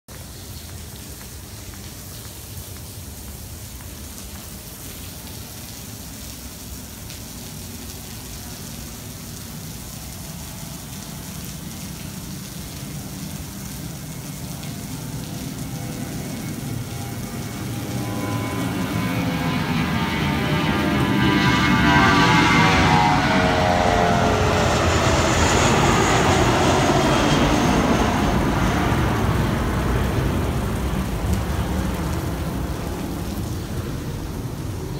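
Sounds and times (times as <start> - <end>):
heavy rain falling: 0.1 - 34.9
distant jet engines rumbling: 12.8 - 34.9.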